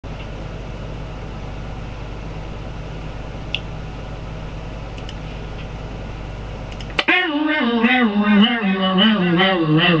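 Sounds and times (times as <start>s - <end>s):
low electrical hum: 0.0s - 10.0s
sharp click: 6.7s - 7.1s.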